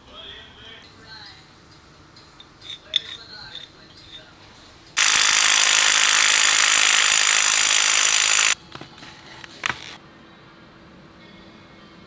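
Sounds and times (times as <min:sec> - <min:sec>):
cordless power driver running: 0:05.0 - 0:08.6.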